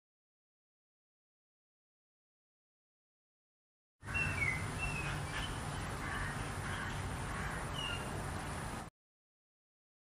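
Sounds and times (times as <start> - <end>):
high bird chirps: 4.0 - 7.1, 7.7 - 8.1.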